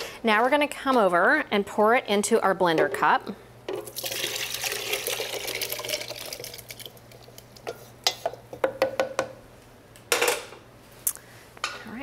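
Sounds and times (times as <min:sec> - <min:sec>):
food pouring into blender: 0:03.9 - 0:07.4
wooden spoon knocking on pan: 0:08.6 - 0:09.4.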